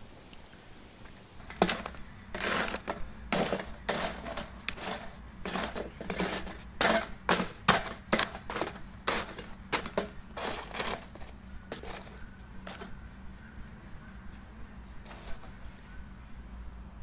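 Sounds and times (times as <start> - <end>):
charcoal briquettes crackling: 0.0 - 12.9, 15.1 - 15.7.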